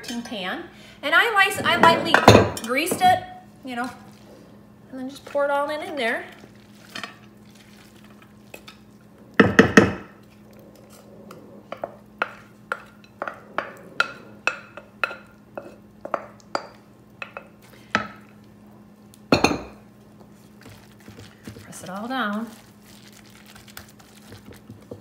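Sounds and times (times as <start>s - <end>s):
glass bowl knocking on glass dish: 19.3s - 19.7s
glass clattering: 19.3s - 19.8s.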